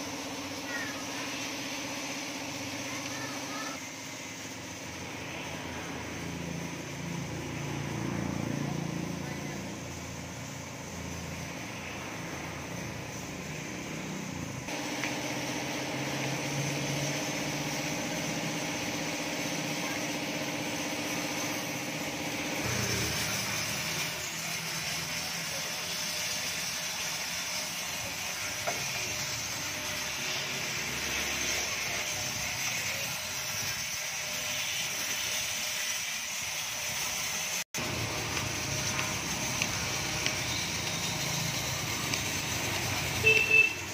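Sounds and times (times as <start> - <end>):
machine hum: 0.0 - 25.6, 37.8 - 43.9
pressure washer spray hiss: 0.0 - 43.9.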